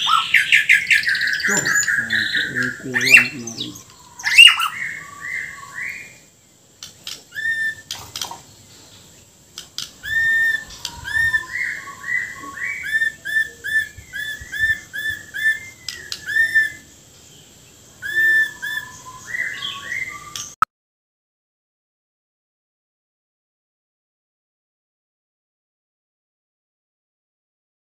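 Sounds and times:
bird whistling song: 0.0 - 20.6.

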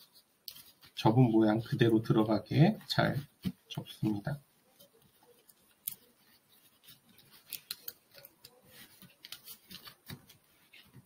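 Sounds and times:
paper crinkling: 0.0 - 1.0, 3.0 - 11.0.

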